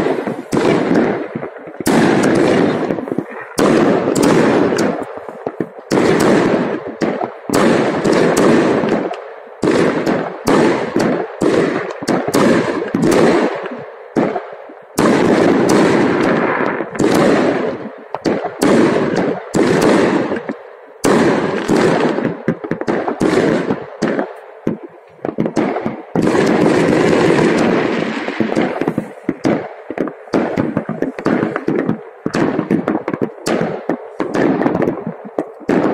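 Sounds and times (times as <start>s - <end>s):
fireworks bangs and crackles: 0.0s - 35.9s.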